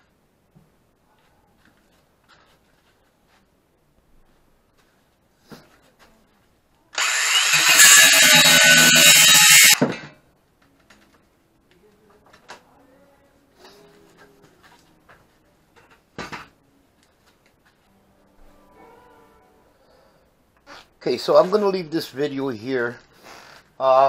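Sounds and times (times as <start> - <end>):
cordless drill running: 7.0 - 9.9.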